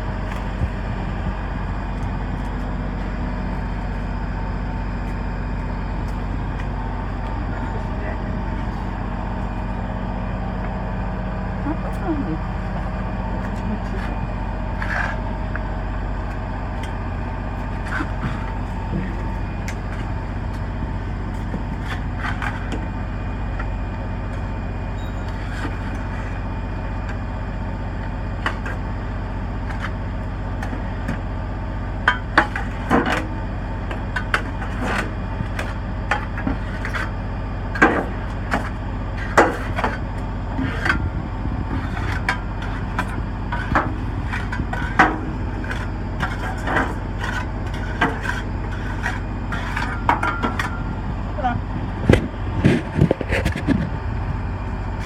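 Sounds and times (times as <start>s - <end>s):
steady machine hum: 0.0s - 55.0s
shovel scraping soil: 41.7s - 50.0s.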